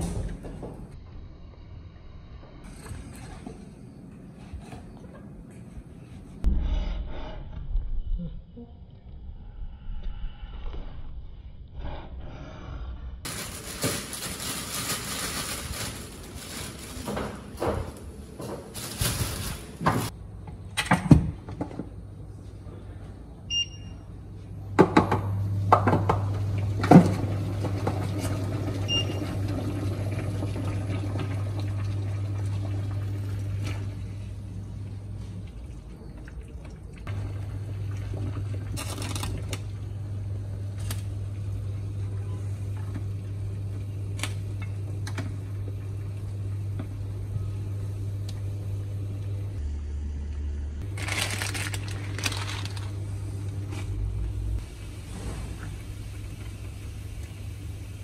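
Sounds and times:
kitchen appliance humming: 24.7 - 58.0.

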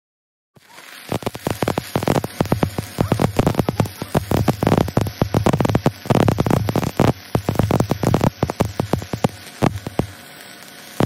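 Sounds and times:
welding arc crackling and popping: 0.6 - 11.0.

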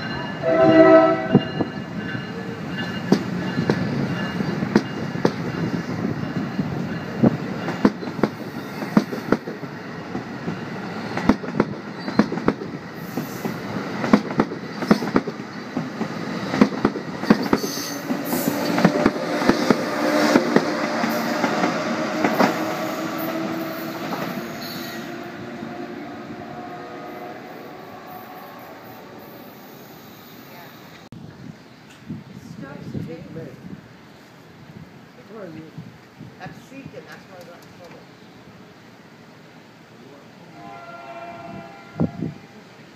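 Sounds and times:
train wheels clacking over rail joints: 1.3 - 23.4.

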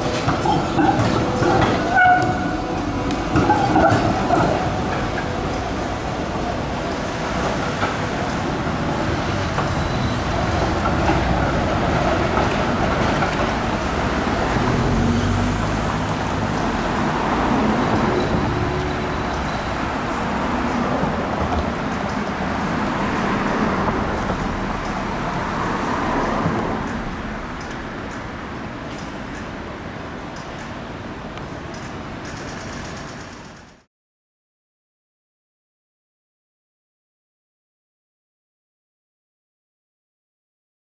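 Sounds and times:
vehicles driving past: 0.0 - 31.1.

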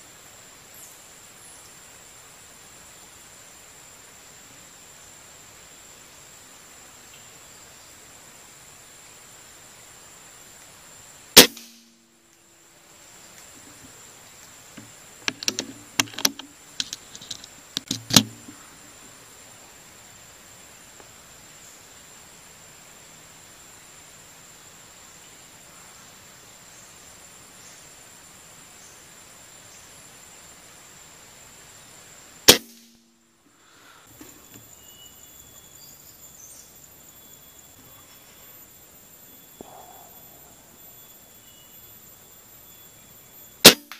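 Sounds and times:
faint outdoor background: 0.0 - 43.9
air rifle shot: 11.4 - 11.9, 32.5 - 32.9, 43.6 - 43.9
rifle handling clicks and knocks: 14.8 - 18.6
thin high steady tone: 34.1 - 43.9.

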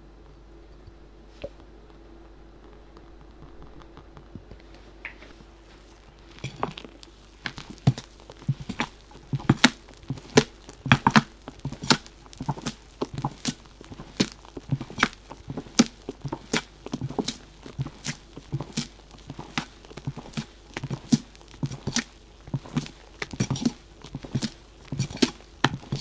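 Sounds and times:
wet thuds of batter: 2.8 - 26.0.

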